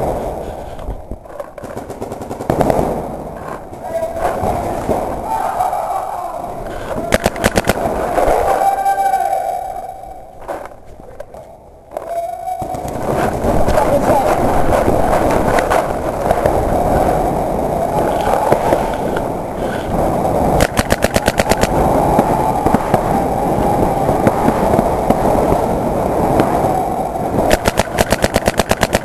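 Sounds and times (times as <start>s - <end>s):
continuous rumble: 0.0s - 29.0s
paintball marker rapid fire: 7.1s - 8.3s, 20.6s - 23.1s, 27.4s - 29.0s.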